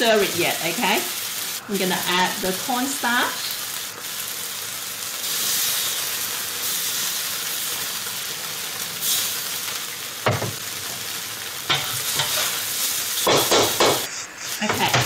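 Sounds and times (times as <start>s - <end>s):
noodles sizzling in a wok: 0.0s - 15.0s
spatula knocking metal wok: 13.3s - 14.1s.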